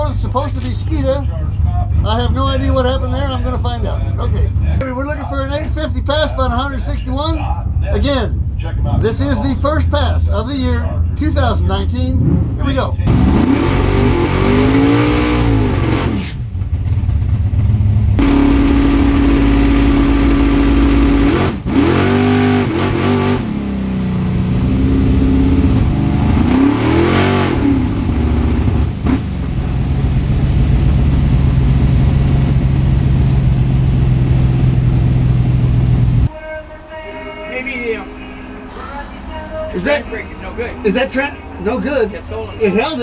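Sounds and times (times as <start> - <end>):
race car engine revving: 8.8 - 36.3.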